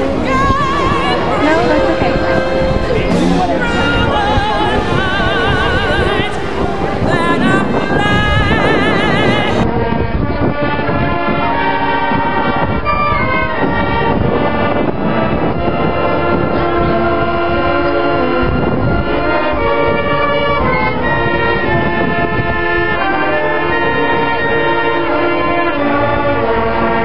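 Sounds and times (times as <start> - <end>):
marching band brass chords: 0.0 - 27.0.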